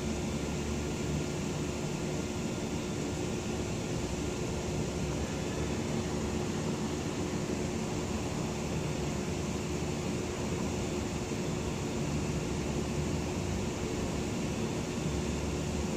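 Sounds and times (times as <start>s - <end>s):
faint hum: 0.0s - 15.9s.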